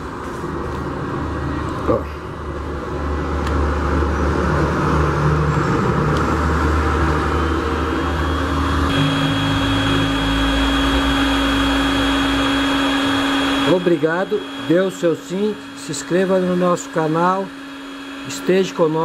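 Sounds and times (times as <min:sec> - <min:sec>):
heat gun fan whirring: 0:02.4 - 0:19.0
thin high whine: 0:04.1 - 0:19.0.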